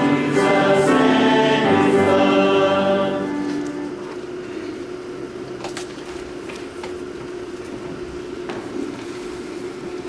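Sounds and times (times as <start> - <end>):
steady hum: 0.0 - 10.0.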